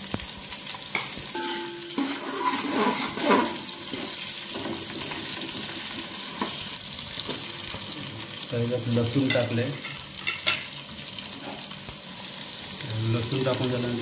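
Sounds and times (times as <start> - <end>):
onions sizzling in hot oil: 0.0 - 14.0
metal spoon stirring: 1.4 - 5.4.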